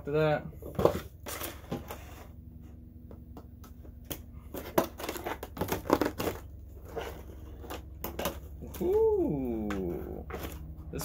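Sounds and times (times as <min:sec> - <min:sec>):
knife cutting tape: 0:04.0 - 0:10.6
plastic packaging crinkling: 0:04.1 - 0:08.9.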